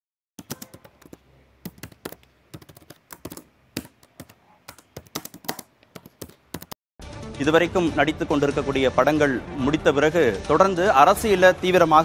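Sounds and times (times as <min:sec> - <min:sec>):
laptop keyboard typing: 0:00.4 - 0:06.8.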